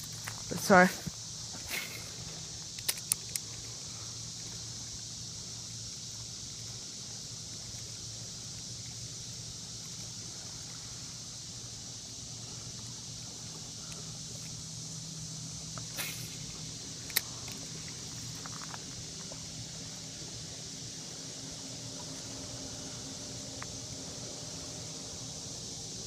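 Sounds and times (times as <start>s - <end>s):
high hiss: 0.0s - 26.0s
small clicks: 2.7s - 3.6s.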